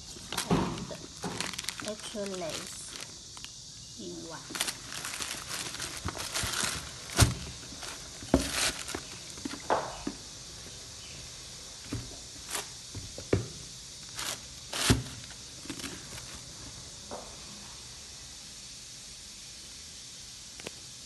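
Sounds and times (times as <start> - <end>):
paper and plastic rustling: 0.1 - 3.1, 4.3 - 9.8, 11.9 - 13.1, 14.0 - 16.5
shoes thumping in boxes: 4.5 - 10.2, 14.2 - 16.3.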